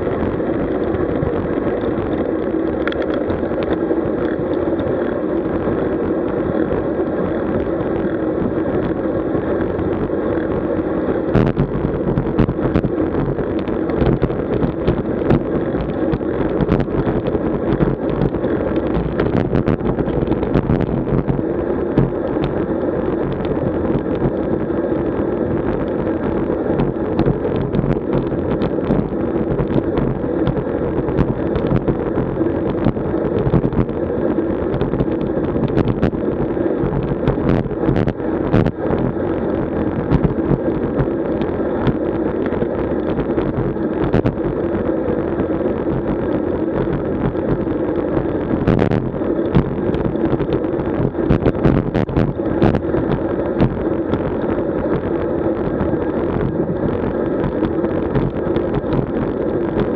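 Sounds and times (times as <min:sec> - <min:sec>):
rolling road noise: 0:00.0 - 0:59.9
wind rush on microphone: 0:00.0 - 0:59.9.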